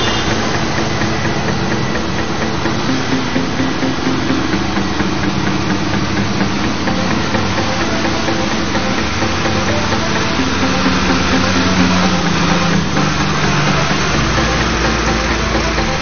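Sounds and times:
tractor diesel engines running: 0.0 - 16.0.

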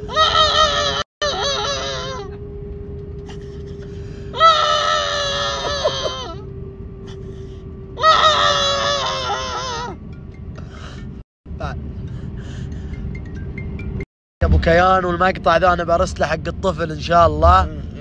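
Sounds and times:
man fake crying wails: 0.0 - 2.4, 4.4 - 6.4, 8.0 - 10.0.

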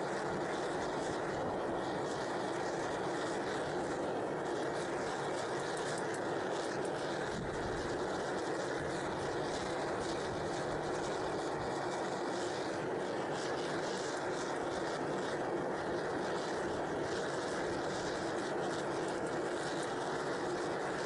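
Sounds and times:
furnace roaring: 0.0 - 21.0.

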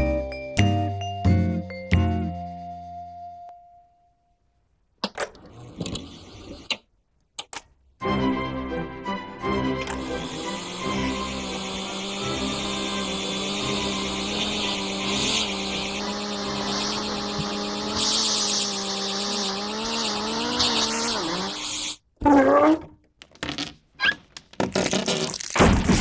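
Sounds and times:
motor-like drone with hiss: 10.0 - 22.0.

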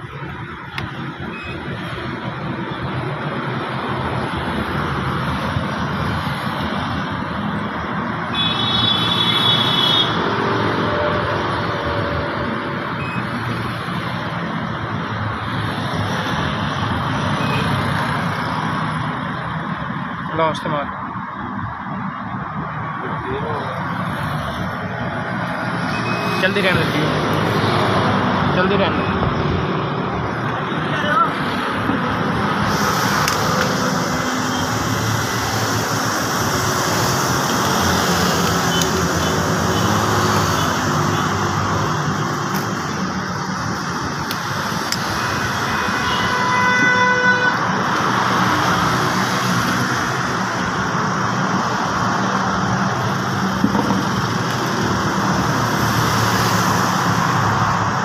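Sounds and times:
faint high beep: 1.3 - 1.6, 13.0 - 13.3.

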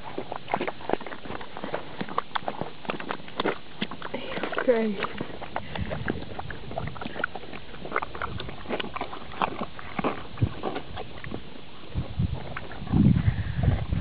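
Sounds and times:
horse slurping feed: 0.0 - 14.0.

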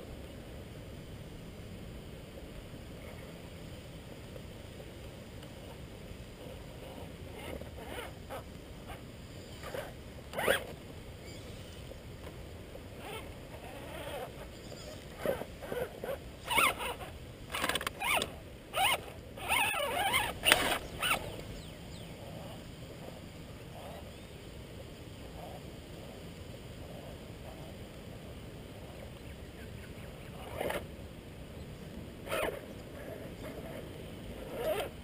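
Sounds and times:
electric drivetrain whirring: 6.4 - 22.1
tyres scraping on rock: 9.6 - 10.7, 15.1 - 21.4.

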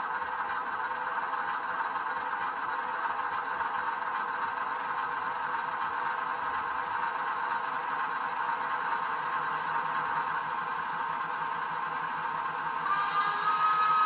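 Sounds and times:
steam hiss from small speaker: 12.6 - 14.0.

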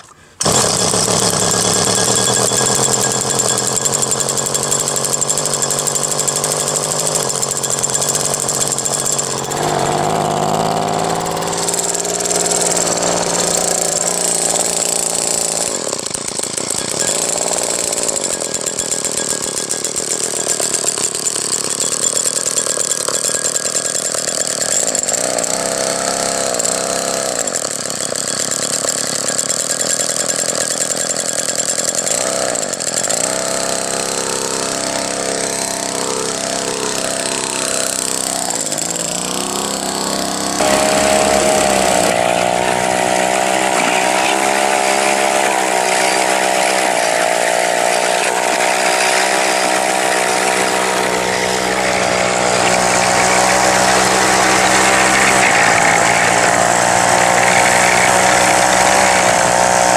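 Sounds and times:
chainsaw engine revving: 0.0 - 59.9.

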